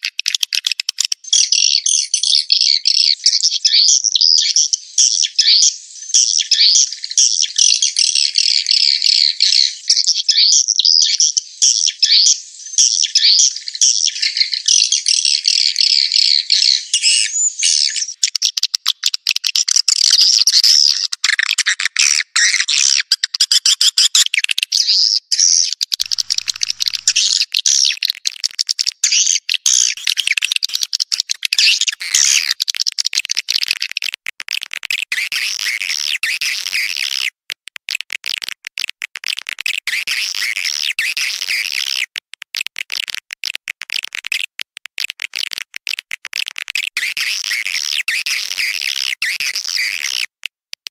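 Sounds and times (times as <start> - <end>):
sharp clicking: 25.8 - 28.8, 41.9 - 47.1
swiftlets chirping and twittering: 25.9 - 28.0.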